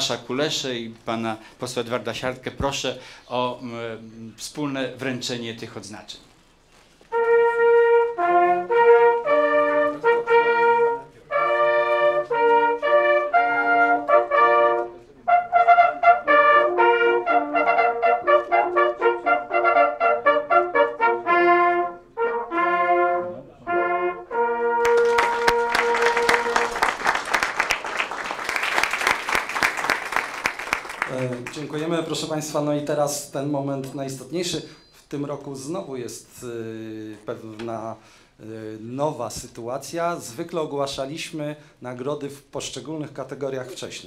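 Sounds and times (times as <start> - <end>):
brass horns playing: 7.1 - 31.6
applause: 24.8 - 32.1.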